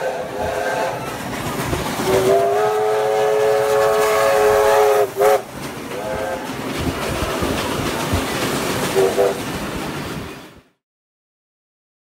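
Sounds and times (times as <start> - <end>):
steam whistle blasts: 0.0 - 1.1, 2.1 - 6.4, 9.0 - 9.4
passing train rumble: 0.0 - 10.8.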